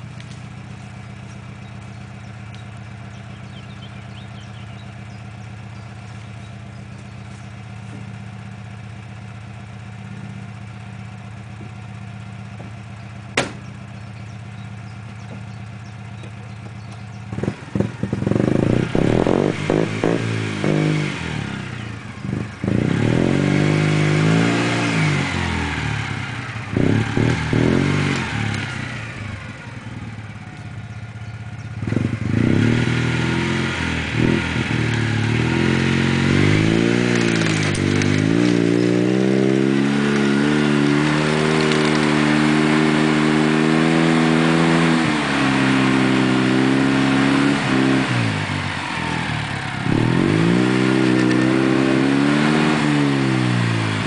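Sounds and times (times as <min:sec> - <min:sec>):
car engine revving hard: 0:17.3 - 0:29.7, 0:31.8 - 0:54.0
clattering: 0:37.0 - 0:38.6.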